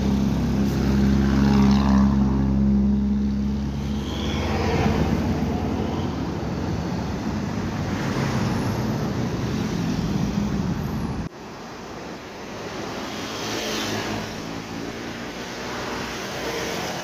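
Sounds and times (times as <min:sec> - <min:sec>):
engine hum: 0:00.0 - 0:11.4
motorcycles and cars passing: 0:00.0 - 0:17.0.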